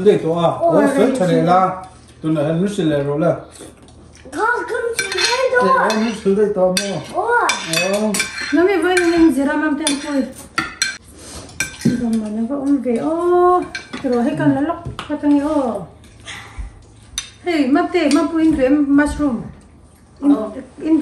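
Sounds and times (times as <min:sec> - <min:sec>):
cutlery clinking on plates: 0:05.0 - 0:12.3
people talking: 0:11.9 - 0:15.9, 0:17.4 - 0:19.6.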